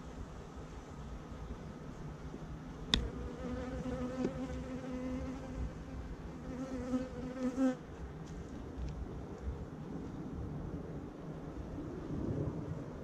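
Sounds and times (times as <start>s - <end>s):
honeybee buzzing: 2.9s - 7.8s.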